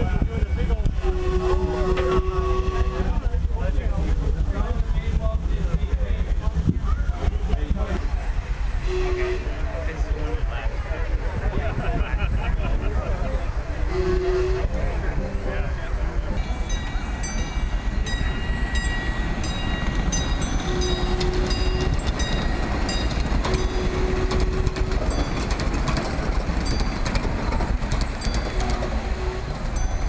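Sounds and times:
miniature train rumbling: 0.0 - 30.0
wheels clicking over rail joints: 16.4 - 30.0.

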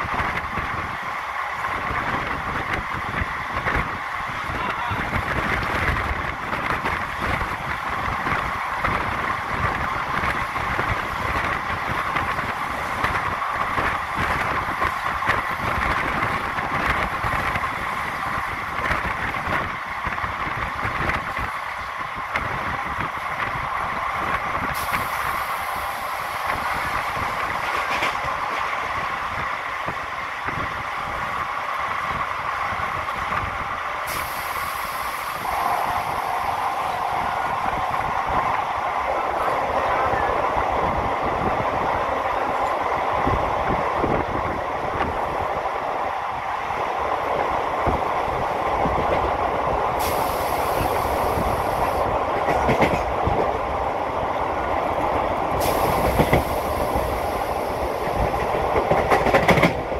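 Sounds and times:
train wheels rolling on track: 0.0 - 59.9
hiss: 24.6 - 27.7, 34.0 - 37.6, 49.9 - 52.1, 55.5 - 58.4.

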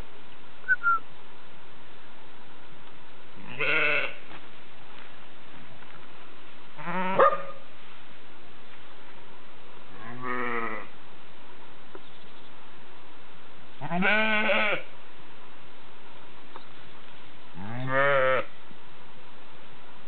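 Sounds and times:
sheep bleating: 3.4 - 4.2, 13.8 - 14.9, 17.6 - 18.5.

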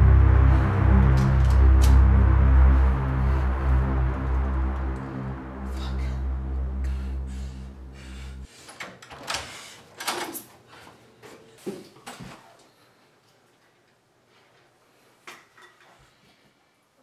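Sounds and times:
background music: 0.0 - 8.5.

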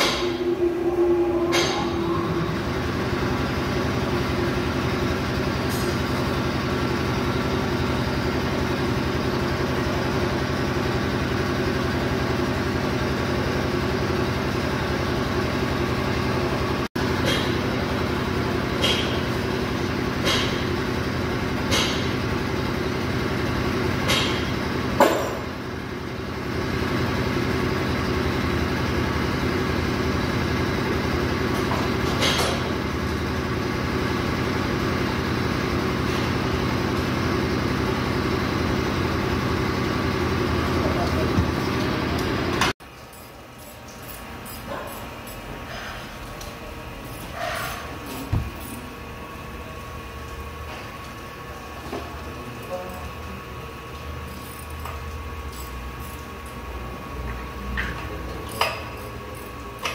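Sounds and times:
machine hum: 0.0 - 42.8.

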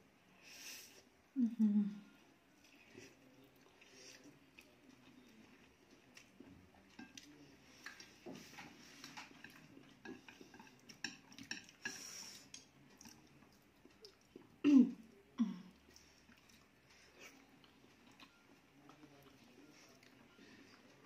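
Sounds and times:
chopsticks clicking on plates: 6.9 - 12.7.

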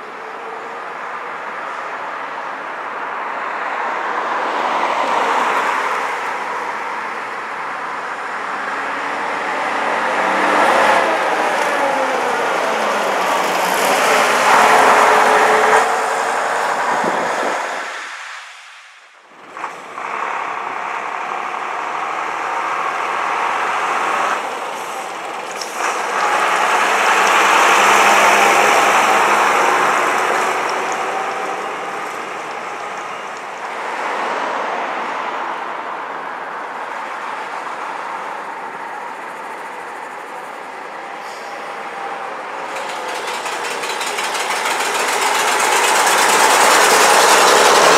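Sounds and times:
diesel buses driving past: 0.0 - 47.9.

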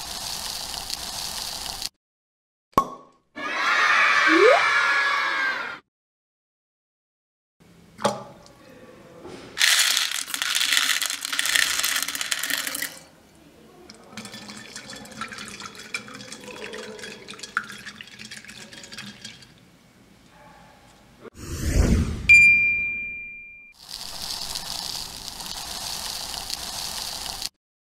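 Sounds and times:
beads crackling and trickling: 9.6 - 12.9, 23.8 - 27.5
beads pouring into water: 9.6 - 13.0, 23.8 - 27.5.

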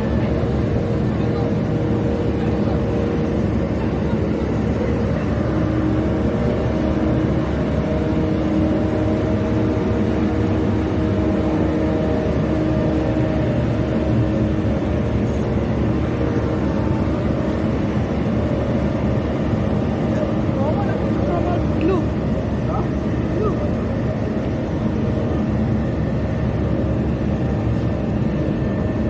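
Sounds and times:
loud mechanical drone: 0.0 - 29.0.

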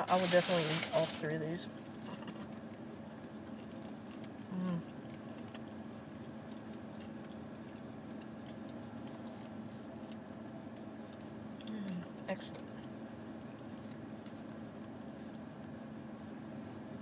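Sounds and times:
steady low hum: 0.0 - 17.0
person chewing food: 1.8 - 10.3.

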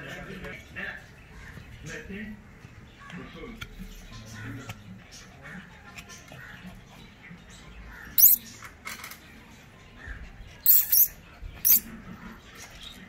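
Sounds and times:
metal chain leash jingling: 8.2 - 8.4, 10.7 - 11.1.

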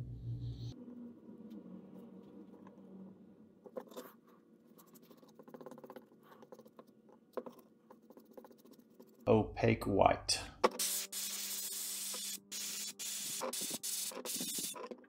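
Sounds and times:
paintbrush scratching on leather: 3.9 - 9.3.

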